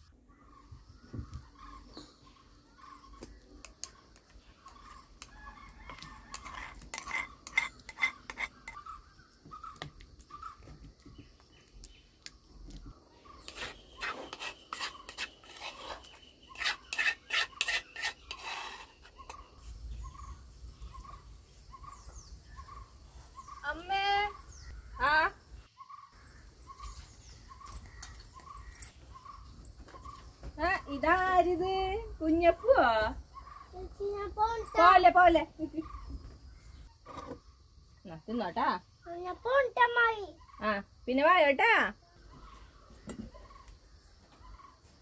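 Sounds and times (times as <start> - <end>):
bird calling: 0.3 - 11.6, 13.1 - 30.5.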